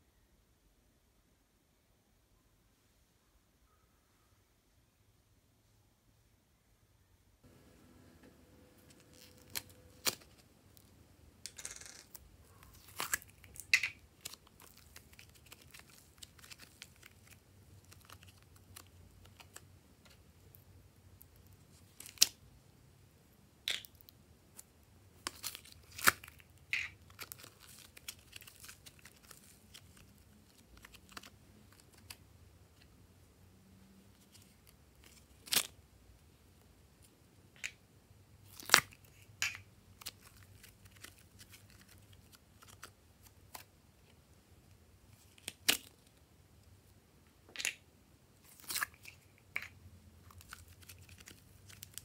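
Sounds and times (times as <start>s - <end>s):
sticky peeling and crinkling: 8.9s - 10.9s, 12.5s - 20.6s, 25.2s - 32.2s, 39.9s - 43.7s, 50.2s - 52.0s.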